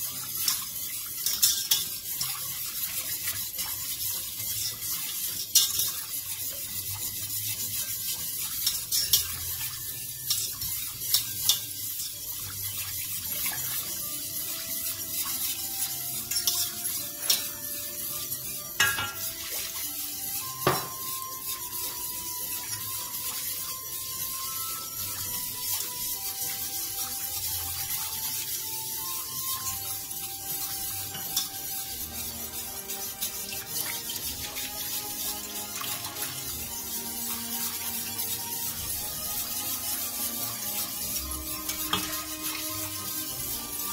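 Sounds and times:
spoon clinking against a pot: 0.0 - 43.9
spoon scraping in a pot: 0.0 - 43.9.

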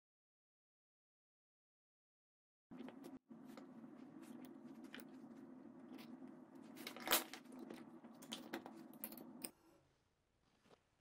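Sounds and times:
steady low hum: 2.7 - 10.0.

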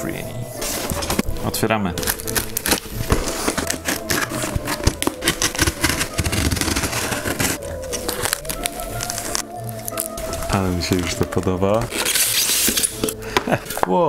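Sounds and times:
cardboard scraping: 0.6 - 13.2
box cutter slicing packing tape: 2.0 - 8.4, 11.9 - 13.2.

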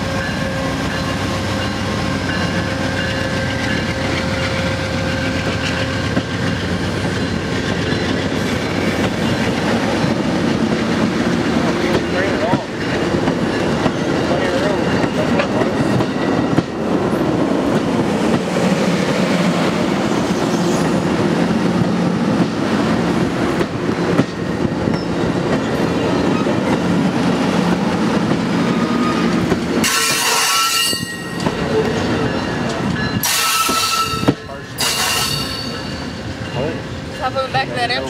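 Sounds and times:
train wheels rumbling on rails: 0.0 - 38.0
high-pitched wheel squeal: 28.7 - 32.4, 33.1 - 36.7.

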